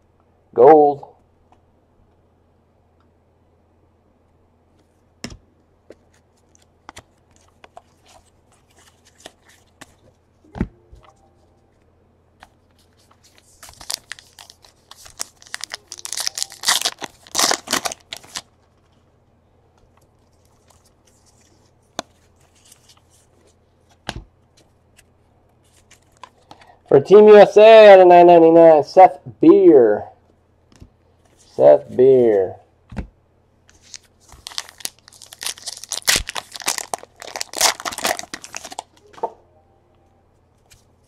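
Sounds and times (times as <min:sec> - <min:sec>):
cards handled clicking and tapping: 0:05.2 - 0:10.1
wrapper tearing and crinkling: 0:13.2 - 0:18.5, 0:33.7 - 0:39.0.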